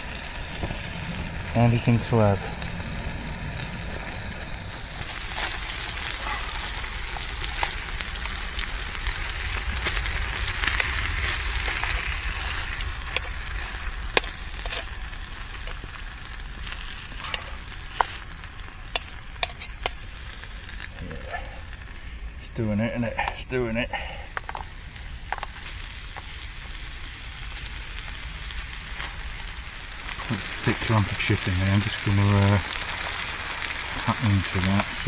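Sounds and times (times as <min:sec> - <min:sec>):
chicken sizzling in a pan: 0:00.0 - 0:22.8, 0:24.0 - 0:35.0.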